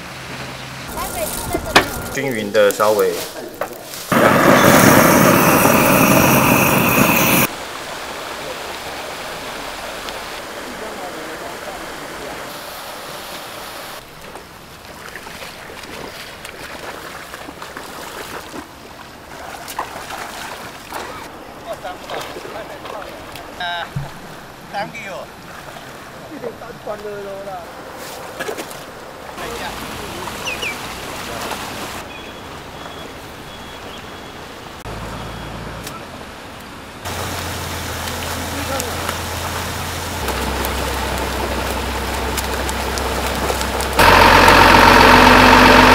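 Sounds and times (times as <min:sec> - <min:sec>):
steady outdoor hiss: 0:00.0 - 0:15.7, 0:20.6 - 0:45.9
pond water sloshing: 0:07.5 - 0:32.1, 0:37.0 - 0:45.9
small splashes and knocks: 0:14.1 - 0:24.4.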